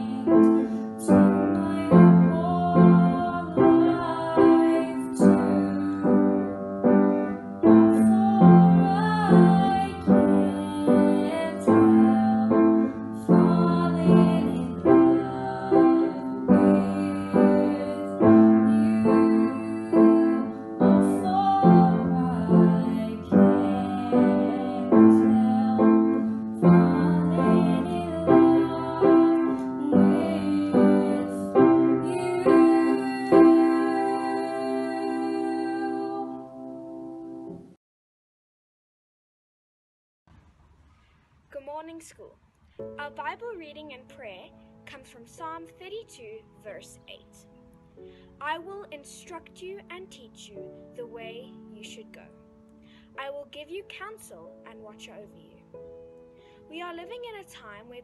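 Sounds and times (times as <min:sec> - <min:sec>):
girl singing: 0:00.0 - 0:36.5, 0:48.4 - 0:52.4
piano chords: 0:00.0 - 0:37.8, 0:42.8 - 0:58.0.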